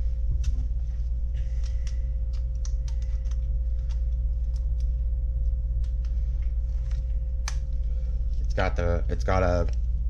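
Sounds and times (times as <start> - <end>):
steady low hum: 0.0 - 10.0
recorder being handled clicks: 5.7 - 7.8.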